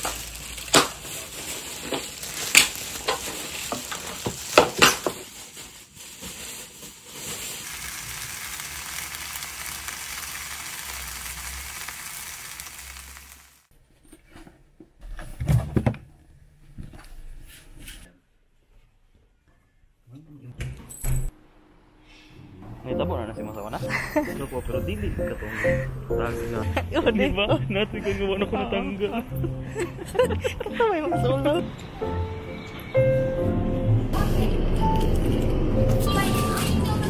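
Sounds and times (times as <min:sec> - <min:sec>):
food sizzling in a frying pan: 0:00.0 - 0:13.7
pots and lids clacking: 0:01.8 - 0:05.2.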